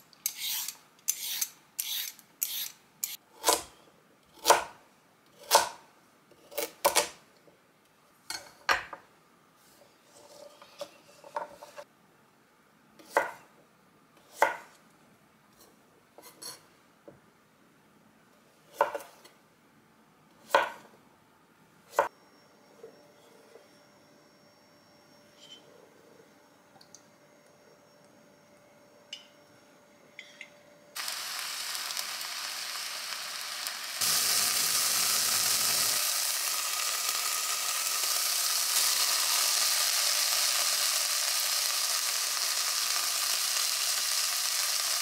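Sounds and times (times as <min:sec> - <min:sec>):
peeler scraping carrot: 0:00.2 - 0:03.2.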